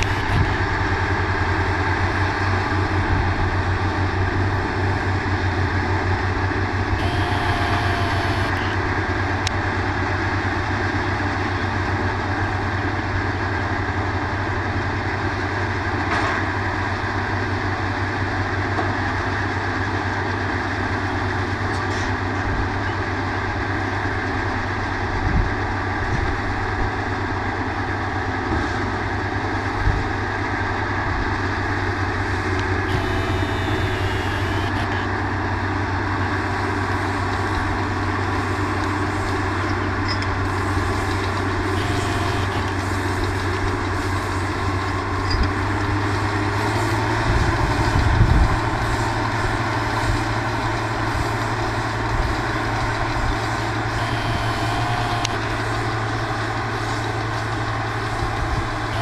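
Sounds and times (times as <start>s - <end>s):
baler machinery noise: 0.0s - 59.0s
tractor engine running: 0.0s - 59.0s.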